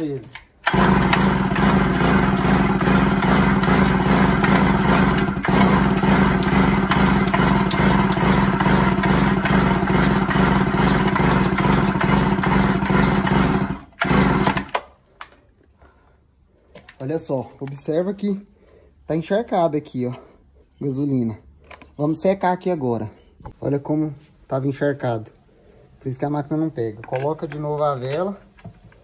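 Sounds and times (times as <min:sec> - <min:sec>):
chainsaw recoil starter pulls: 0:00.0 - 0:16.0.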